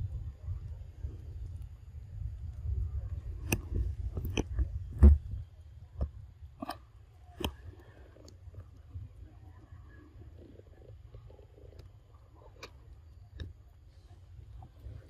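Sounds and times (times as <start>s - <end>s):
sharp clicks and crackles: 1.1s - 5.4s.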